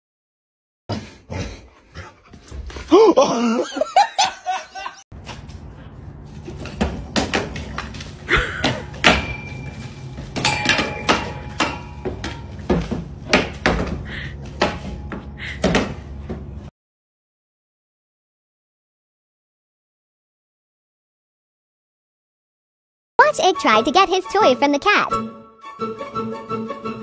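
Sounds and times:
metal frame clattering on ground: 0:07.5 - 0:13.2.

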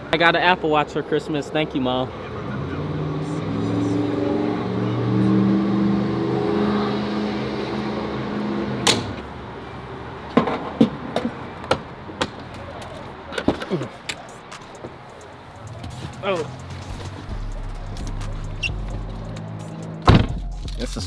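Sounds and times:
car engine idling: 0:14.1 - 0:21.0.

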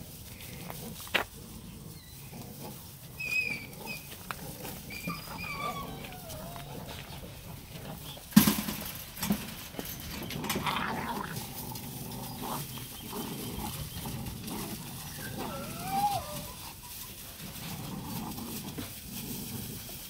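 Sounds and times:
rustling in dry leaves: 0:00.0 - 0:20.0
puppies yipping and growling: 0:01.4 - 0:08.8, 0:10.0 - 0:20.0
puppy whining: 0:03.2 - 0:08.3, 0:12.2 - 0:17.2.

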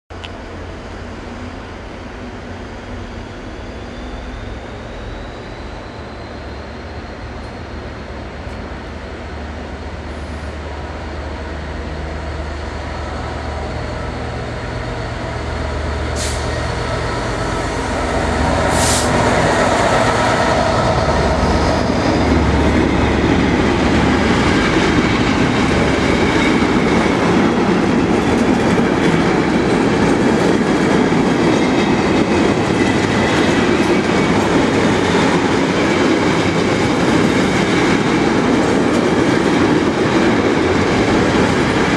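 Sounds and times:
diesel locomotive accelerating: 0:00.1 - 0:41.9
train wheels rumbling on rails: 0:00.1 - 0:41.9.

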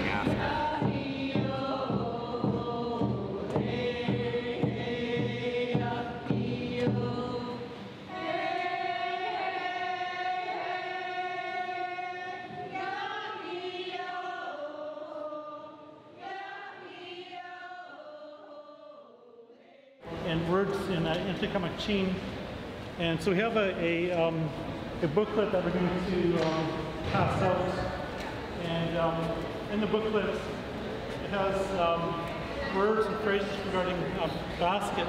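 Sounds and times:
choir chanting: 0:00.0 - 0:20.0.

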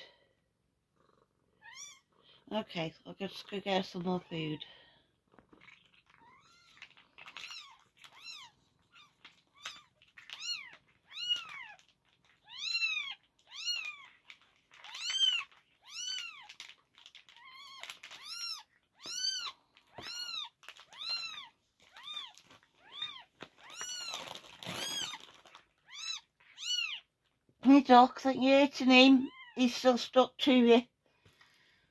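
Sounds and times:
kittens mewing: 0:05.5 - 0:27.1.

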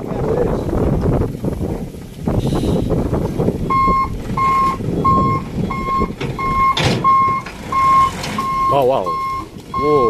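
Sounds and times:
truck engine running: 0:00.5 - 0:10.0
reversing alarm beeping: 0:03.7 - 0:10.0.

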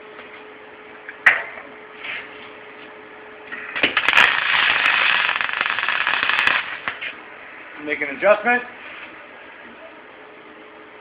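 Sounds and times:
welding arc crackling hiss: 0:03.5 - 0:07.2.

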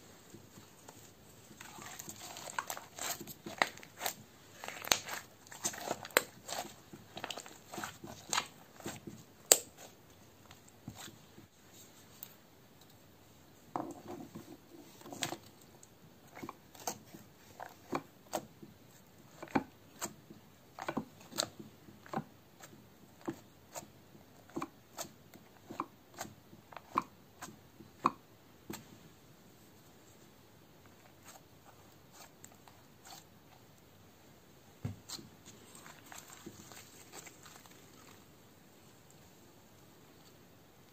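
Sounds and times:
slime squishing: 0:00.3 - 0:11.4, 0:14.4 - 0:28.1, 0:30.8 - 0:33.6, 0:35.0 - 0:38.4
knife cutting slime crackling: 0:01.6 - 0:10.0.

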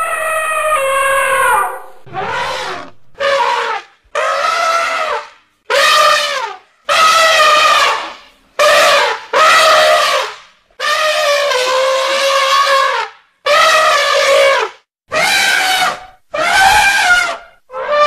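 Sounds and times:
elephant trumpeting: 0:00.0 - 0:10.2, 0:15.1 - 0:18.0.

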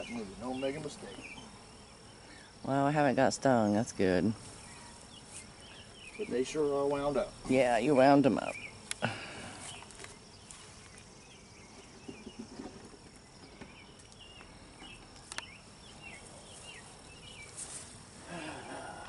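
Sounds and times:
bees buzzing: 0:00.0 - 0:19.0
wooden hive knocks: 0:11.8 - 0:15.2.

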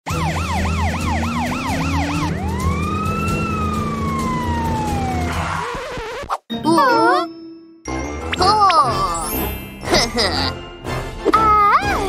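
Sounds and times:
police siren: 0:00.0 - 0:06.2.

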